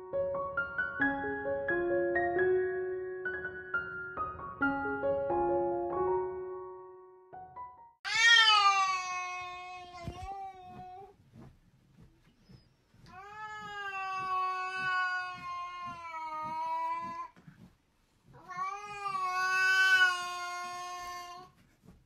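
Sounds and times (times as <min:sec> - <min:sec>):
cat yowling: 0:08.1 - 0:10.3, 0:18.4 - 0:21.4.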